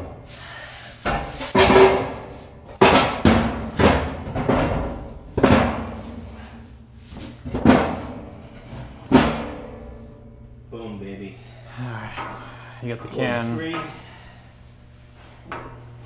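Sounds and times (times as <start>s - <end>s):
metal cans banging on steel deck: 1.5s - 2.2s.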